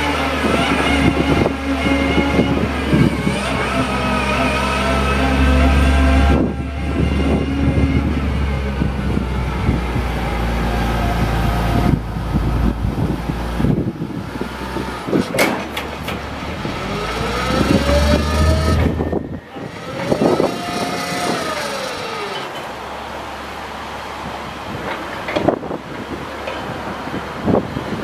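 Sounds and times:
diesel engine running: 0.0s - 28.0s
hydraulic whine: 0.0s - 28.0s.

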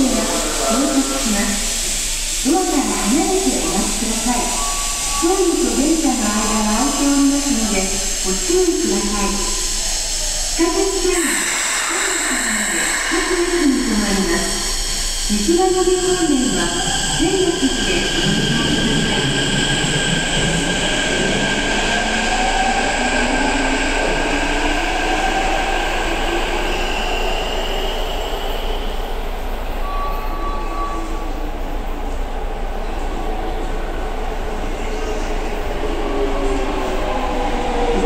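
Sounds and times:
subway train motor whine: 0.0s - 38.0s
train wheel squeal: 2.6s - 32.2s.

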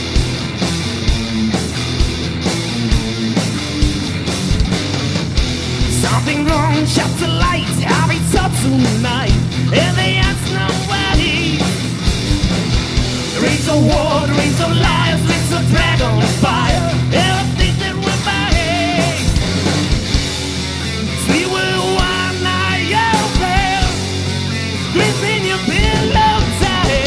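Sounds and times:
punk rock band playing: 0.0s - 27.0s
person singing: 5.9s - 11.7s, 13.4s - 19.4s, 21.2s - 24.1s, 24.9s - 27.0s.

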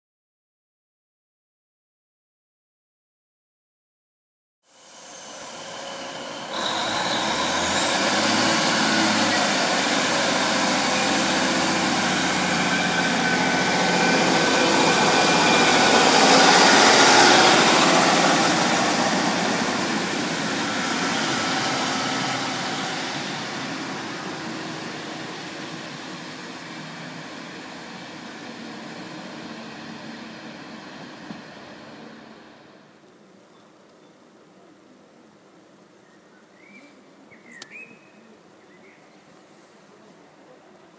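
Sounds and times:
rising whine: 4.7s - 33.0s
diesel train engine: 4.7s - 33.2s.

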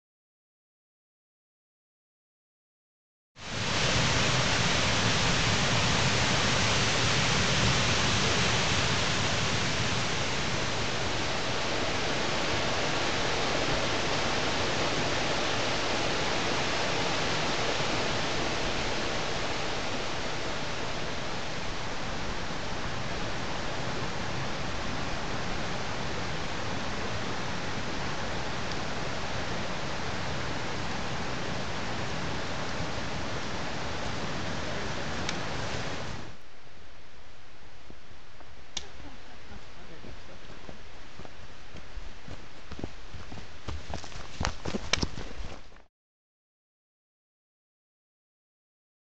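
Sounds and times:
whitewater rushing over rocks: 3.4s - 36.3s.

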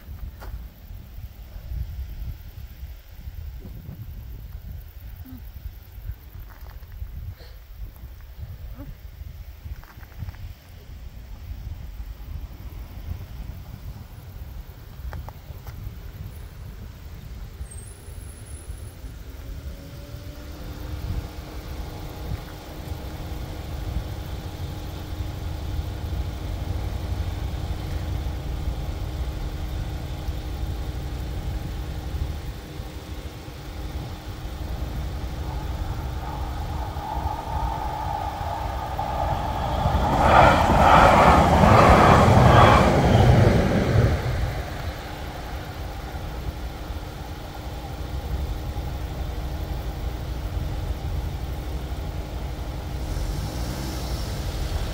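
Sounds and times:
train wheels on rails: 20.8s - 54.9s
train motor whine: 22.0s - 51.3s.

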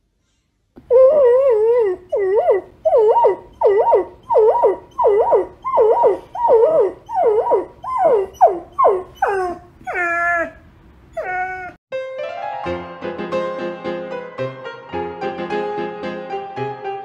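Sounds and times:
dog howling: 0.8s - 11.8s.

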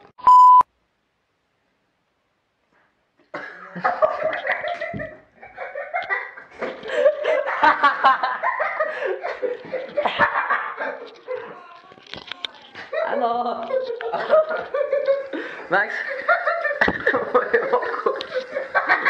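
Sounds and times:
people coughing: 3.3s - 4.1s
young people laughing: 3.4s - 11.6s, 12.7s - 19.0s.

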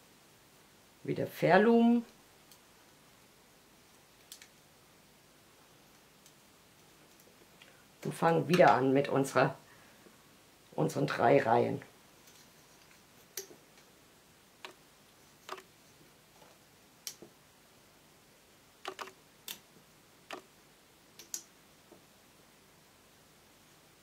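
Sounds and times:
rubber bands clicking on pegs: 18.8s - 19.7s.

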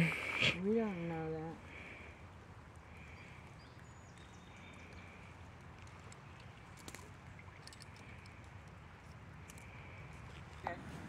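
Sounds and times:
light clicks and ticks: 3.4s - 10.7s.

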